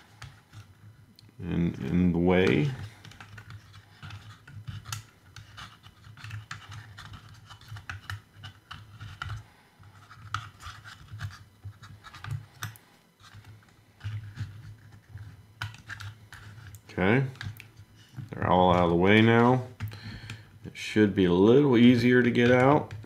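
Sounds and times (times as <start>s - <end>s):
screwdriver scraping and clicking: 1.8s - 19.6s.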